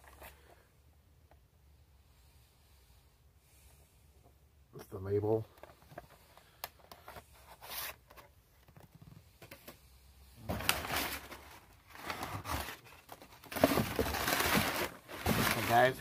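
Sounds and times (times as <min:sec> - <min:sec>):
rustling and crumpling: 0:10.4 - 0:16.0.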